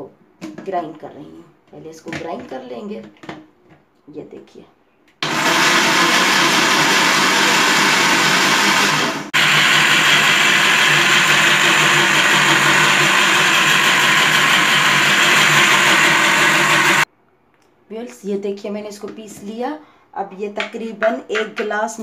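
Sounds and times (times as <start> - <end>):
blender running: 5.2 - 17.1.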